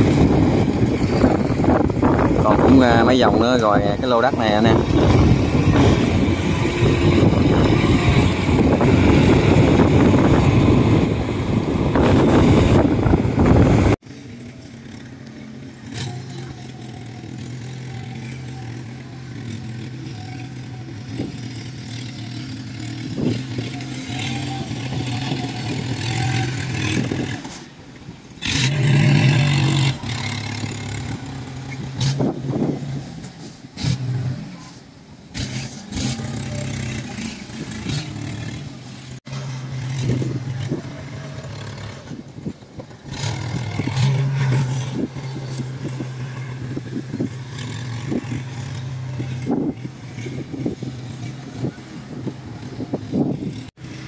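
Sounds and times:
wind noise: 0:00.0 - 0:14.0, 0:22.8 - 0:34.0, 0:39.7 - 0:54.0.

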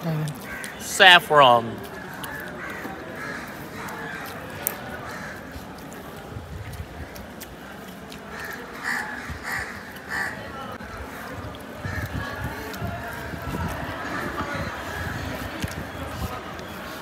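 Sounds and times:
crows cawing: 0:00.4 - 0:00.9, 0:01.9 - 0:05.6, 0:08.3 - 0:12.3.

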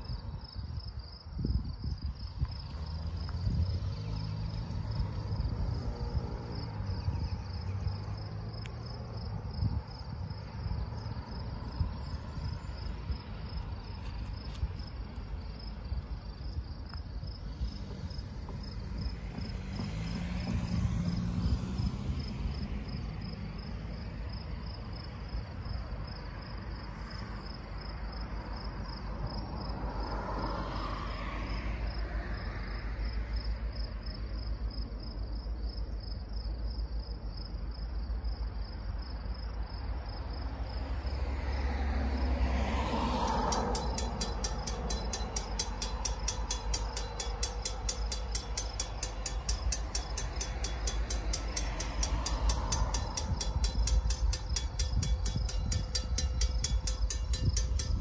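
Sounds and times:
wind rumbling on microphone: 0:00.0 - 0:24.9, 0:42.8 - 0:58.0
insect chirping: 0:00.0 - 0:42.3, 0:43.0 - 0:58.0.

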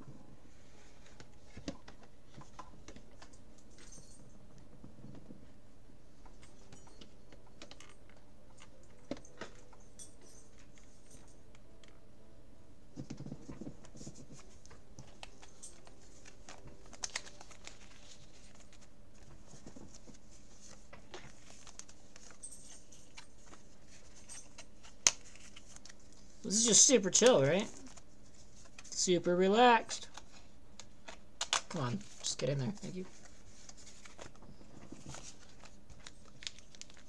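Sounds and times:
cards and binder pages rustling: 0:00.6 - 0:04.2, 0:12.9 - 0:37.0.

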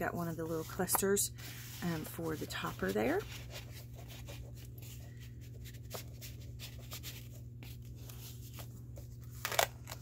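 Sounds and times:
steady low hum: 0:00.0 - 0:10.0
paper rustling: 0:00.5 - 0:10.0.

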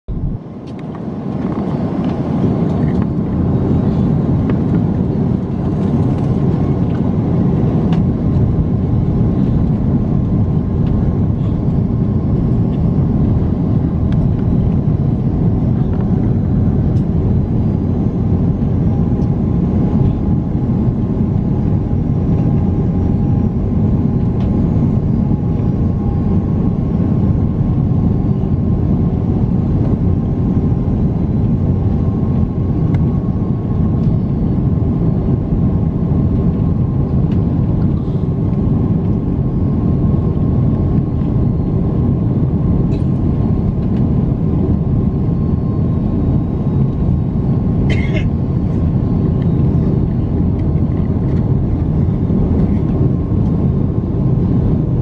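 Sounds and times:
airliner cabin engine rumble: 0:00.1 - 0:55.0.

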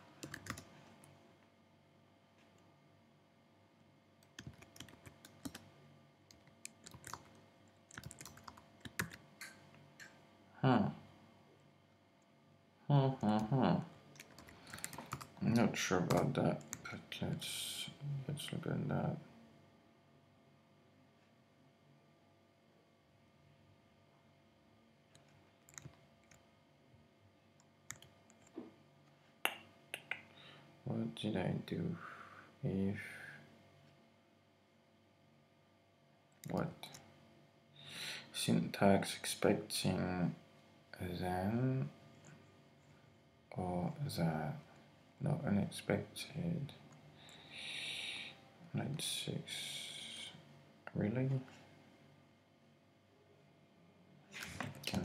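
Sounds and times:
faint keyboard typing: 0:00.0 - 0:01.2, 0:04.2 - 0:10.2, 0:14.1 - 0:17.4, 0:25.1 - 0:26.5, 0:27.6 - 0:28.7
keyboard keystrokes clicking: 0:07.9 - 0:09.2.

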